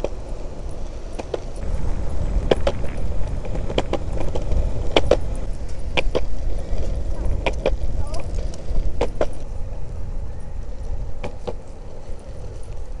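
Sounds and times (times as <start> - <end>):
longboard wheels rolling on concrete: 0.0 - 13.0.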